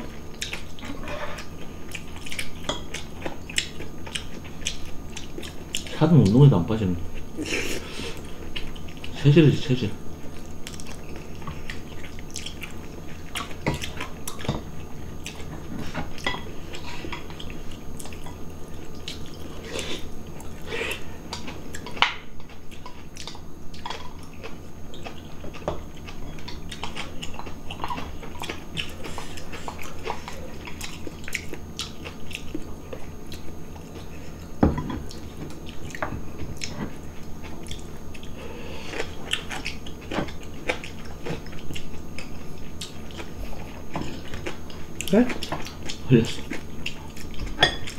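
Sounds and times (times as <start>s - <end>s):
wet chewing and slurping: 10.3s - 14.6s, 15.2s - 47.9s.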